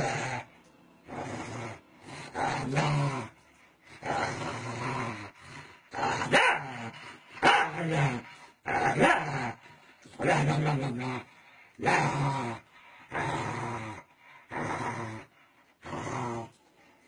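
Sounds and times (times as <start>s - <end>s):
small dog growling and snarling: 0.0s - 16.6s.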